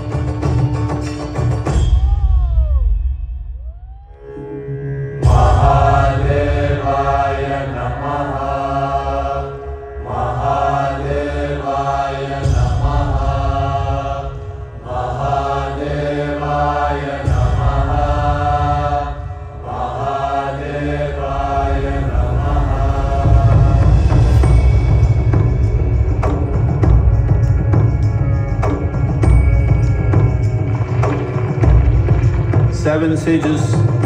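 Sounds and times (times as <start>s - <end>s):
deep low accompaniment: 3.4s - 34.0s
group chanting: 5.2s - 25.0s.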